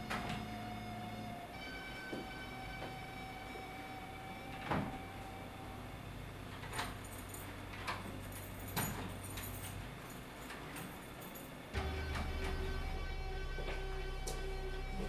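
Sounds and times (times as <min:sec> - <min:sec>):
keys clinking at a lock: 0:06.5 - 0:11.7
low hum: 0:11.7 - 0:15.0.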